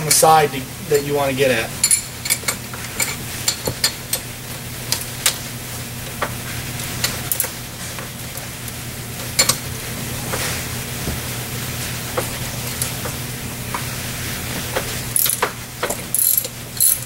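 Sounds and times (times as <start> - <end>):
steady low hum: 0.0 - 17.0
wrench clicking on metal bolts: 15.2 - 15.5, 16.1 - 17.0.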